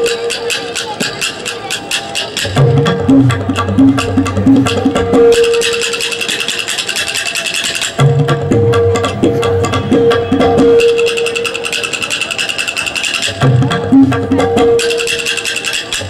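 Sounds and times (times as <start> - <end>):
ringing tabla drum: 0.0 - 16.0
tabla bass drum gliding strokes: 0.0 - 16.0
wooden clappers clacking: 9.0 - 16.0.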